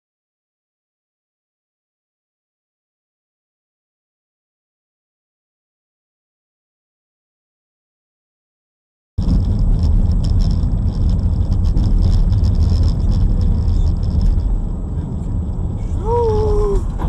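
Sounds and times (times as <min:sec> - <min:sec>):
vehicle engine and road rumble: 0:09.2 - 0:17.0.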